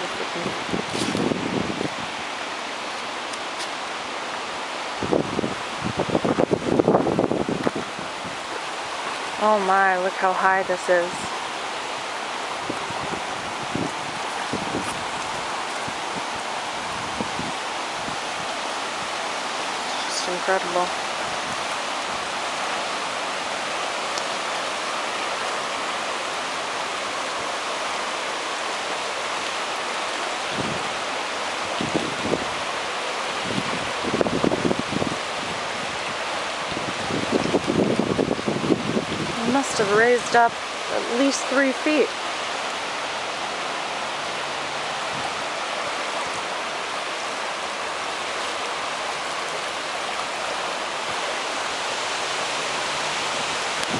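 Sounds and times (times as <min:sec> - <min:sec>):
rushing flooded creek: 0:00.0 - 0:53.9.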